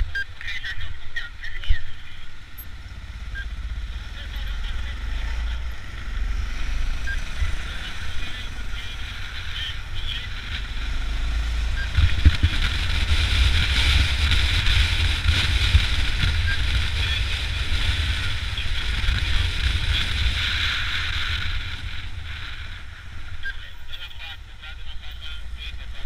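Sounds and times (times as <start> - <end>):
road noise: 0.0 - 26.0
motorcycle engine: 2.0 - 26.0
wind buffeting microphone: 10.4 - 23.4.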